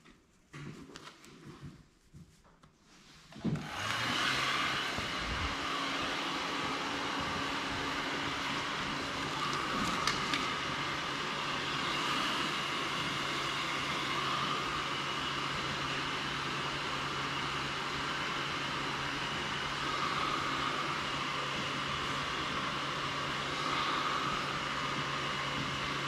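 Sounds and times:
machine hum and hiss: 3.7s - 26.0s.

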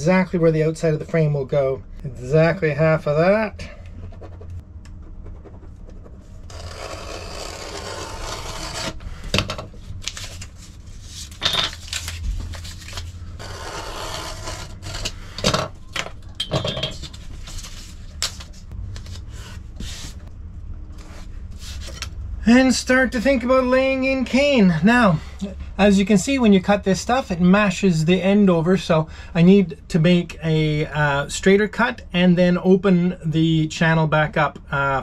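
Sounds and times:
paper scraping on wood: 5.2s - 9.0s.

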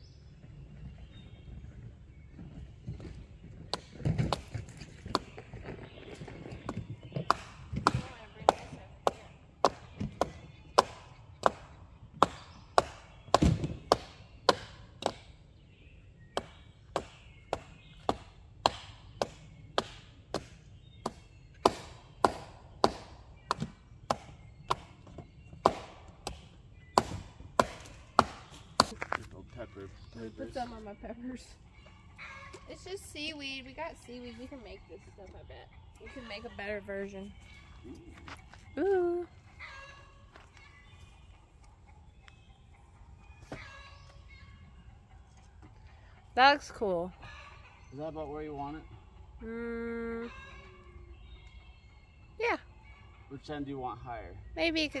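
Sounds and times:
blade chopping wood: 16.4s - 25.0s, 25.6s - 26.4s, 27.0s - 29.2s.

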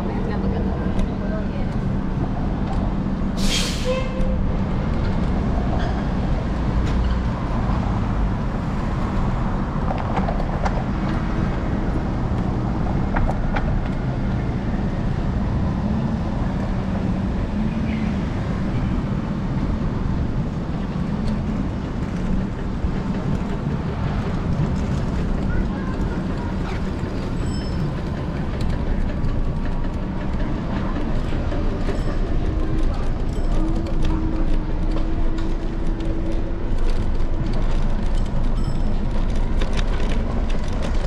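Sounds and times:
city traffic rumble: 0.0s - 41.0s
short sharp hiss: 3.4s - 3.9s.

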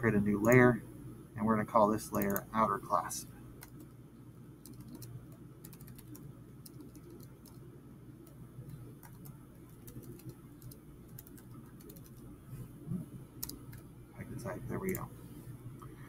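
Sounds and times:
keyboard typing clicks: 2.1s - 2.4s, 3.6s - 3.9s, 4.6s - 7.6s, 8.2s - 12.3s, 13.4s - 13.9s.

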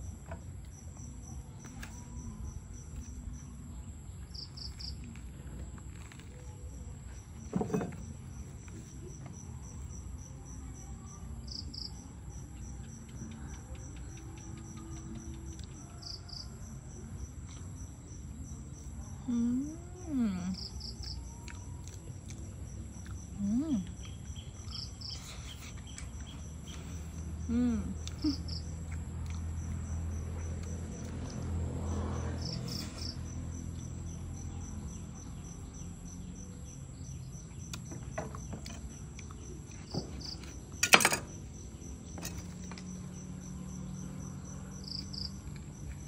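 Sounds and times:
cricket chirping: 0.0s - 46.0s
insects trilling: 0.0s - 46.0s
woman humming: 19.2s - 20.8s, 23.3s - 24.1s, 27.4s - 28.9s.

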